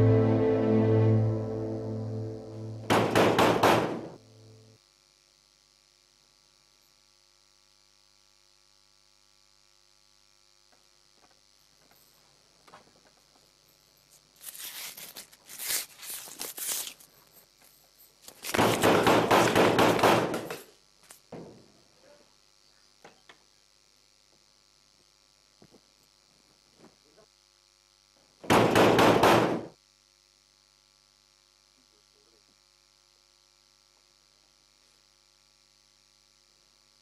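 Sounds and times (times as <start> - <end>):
music: 0.0 - 3.2.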